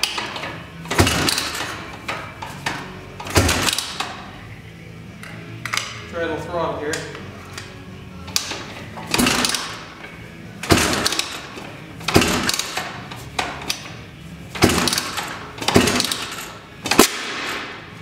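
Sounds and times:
engine being kick-started: 0.0 - 4.2, 8.3 - 9.9, 10.6 - 13.9, 14.5 - 17.7
engine backfire bangs: 10.6 - 13.0, 14.5 - 17.9.

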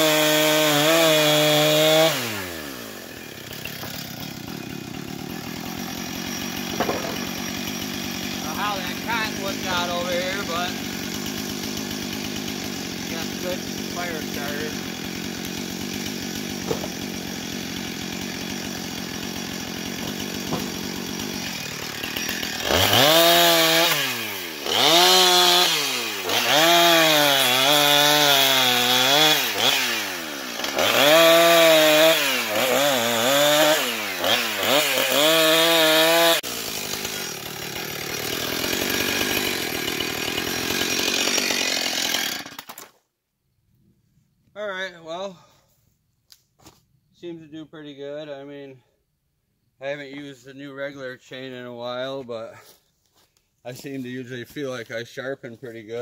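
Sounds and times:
chainsaw cutting wood: 0.0 - 43.0.

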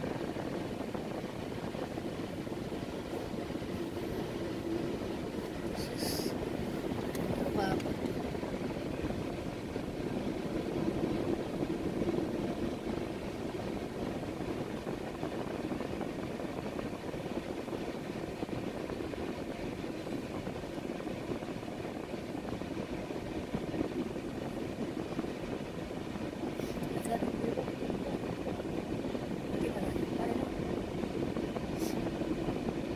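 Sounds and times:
train wheels rumbling on rails: 0.0 - 15.6.

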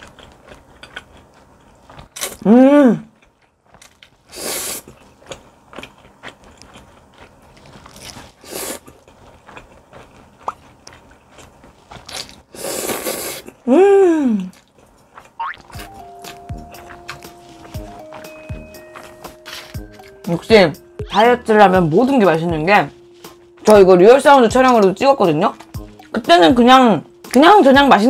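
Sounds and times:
wet chewing clicks: 0.0 - 2.4, 3.0 - 12.5, 14.5 - 20.2
person humming: 2.4 - 3.1, 13.7 - 14.5
person slurping noodles: 4.3 - 4.9, 8.4 - 8.9, 12.5 - 13.6.

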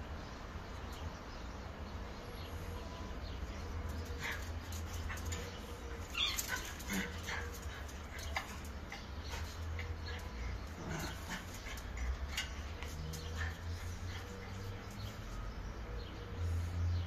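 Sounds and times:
dog whimpering and yipping: 5.9 - 7.5.

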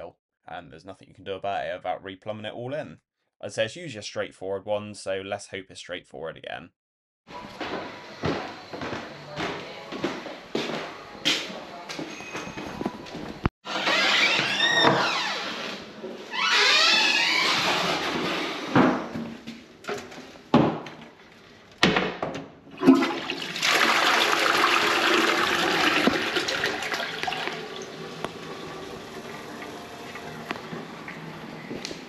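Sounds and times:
toilet flushing: 22.7 - 32.0
water refill trickle: 22.8 - 31.8.

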